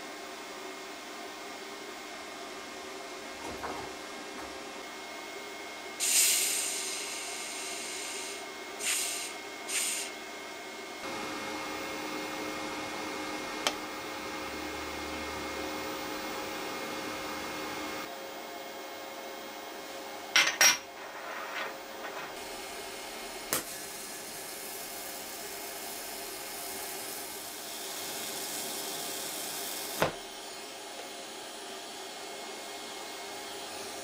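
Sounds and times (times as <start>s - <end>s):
welder humming: 3.3s - 10.2s, 11.0s - 18.1s, 22.1s - 31.1s
gas hissing from regulator: 6.0s - 10.2s, 22.4s - 30.3s.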